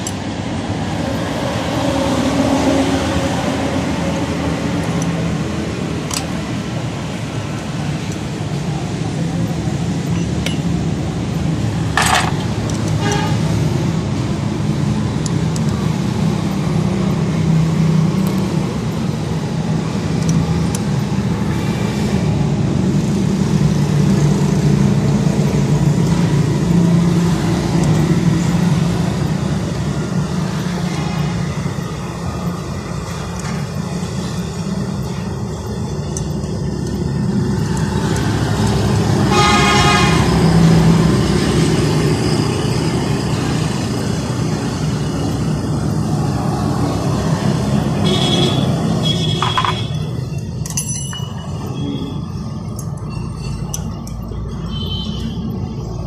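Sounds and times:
traffic noise: 0.0 - 56.0
vehicle horn: 13.0 - 13.5, 39.3 - 40.3, 48.0 - 50.0, 54.7 - 55.4.

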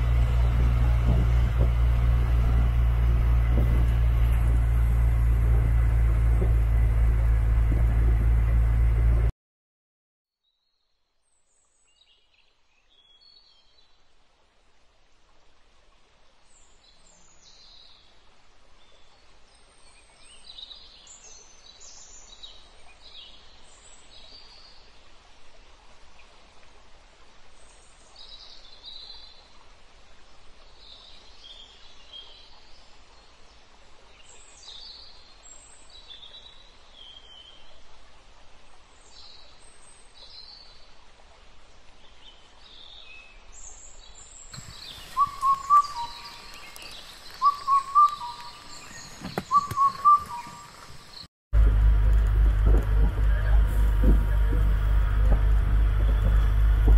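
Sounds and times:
faint steady hiss: 11.2 - 56.9
birds chirping and whistling: 44.6 - 51.2.

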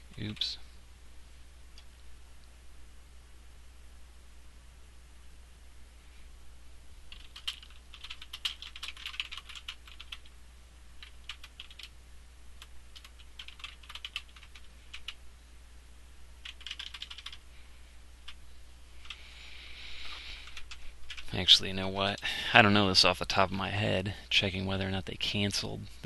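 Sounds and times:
typing on computer keyboard: 7.1 - 10.3, 11.0 - 11.9, 12.6 - 15.2, 16.4 - 17.4, 20.4 - 21.3.

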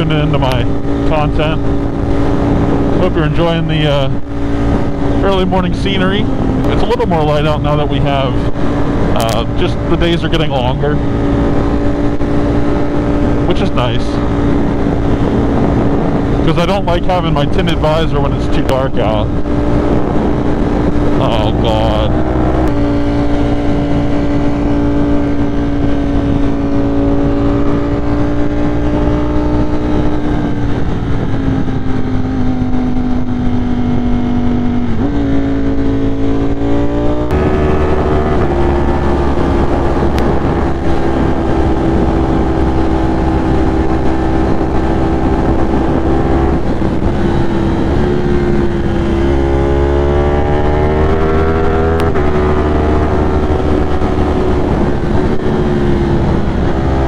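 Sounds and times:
motorcycle engine running: 0.0 - 57.0
wind rushing: 0.0 - 57.0.

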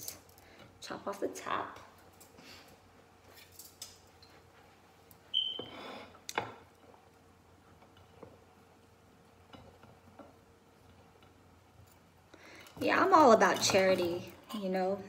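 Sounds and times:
high squeak: 5.3 - 5.9.

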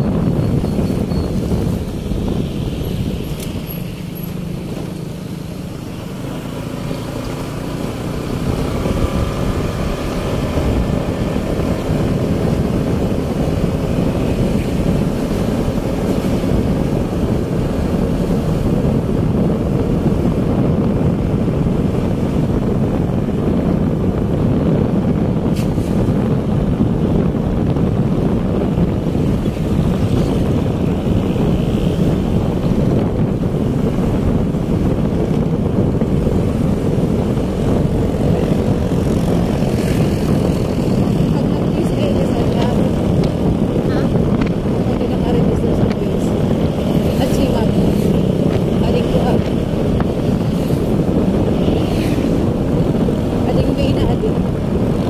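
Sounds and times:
wind buffeting microphone: 0.0 - 55.0
motorcycle engine running: 26.5 - 55.0.

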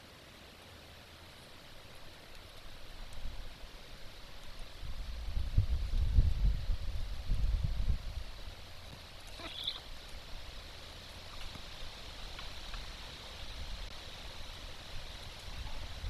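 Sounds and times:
steady outdoor hiss: 0.0 - 16.0
high bird call: 9.3 - 9.9.

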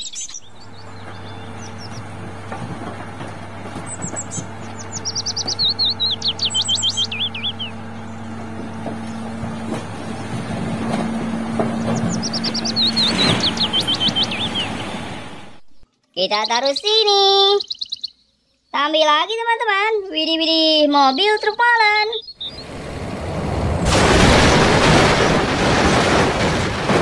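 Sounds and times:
bird chirping: 0.0 - 2.2, 3.8 - 9.3, 11.6 - 19.3, 20.0 - 22.8
truck engine humming: 0.0 - 15.8, 22.4 - 27.0
hydraulic ram raising bed: 0.5 - 15.6.

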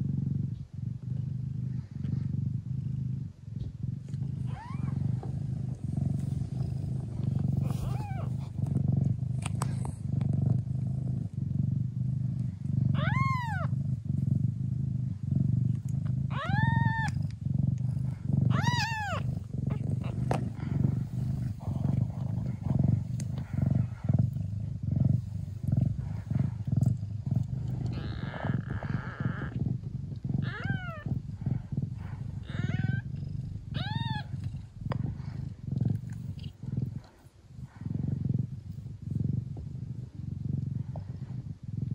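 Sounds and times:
cat purring: 0.0 - 41.9
kittens mewing: 7.6 - 8.4, 18.5 - 20.5, 30.4 - 31.1, 32.3 - 35.0.

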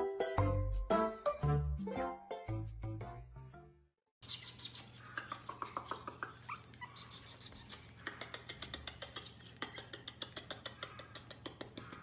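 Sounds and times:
puppy whimpering: 4.7 - 9.8
rapid small clicks: 5.2 - 12.0.

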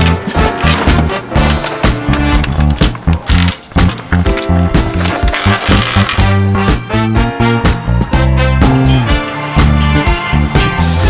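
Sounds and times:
funk music with bass line: 0.0 - 11.0.

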